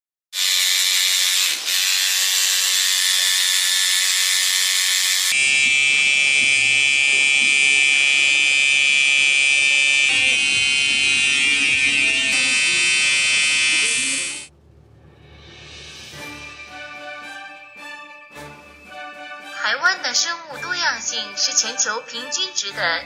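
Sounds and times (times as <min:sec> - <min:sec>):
tattoo machine buzzing: 0:00.4 - 0:14.5.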